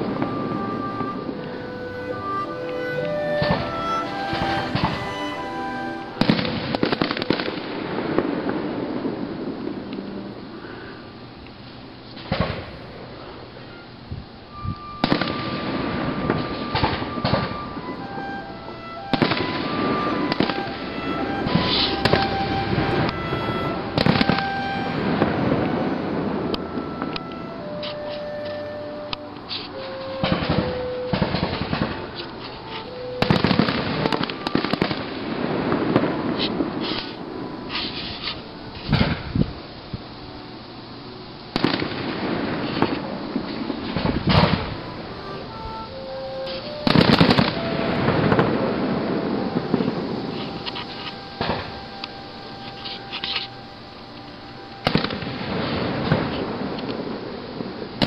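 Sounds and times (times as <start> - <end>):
fireworks bursting and crackling: 0.0 - 58.0
small firework pops: 12.1 - 12.8, 16.2 - 17.6, 21.5 - 23.2, 33.2 - 39.5, 41.5 - 44.8, 46.4 - 48.7, 54.2 - 57.1.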